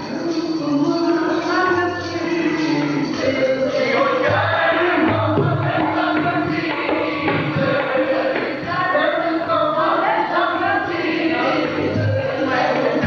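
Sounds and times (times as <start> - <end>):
men singing together: 0.0 - 13.0.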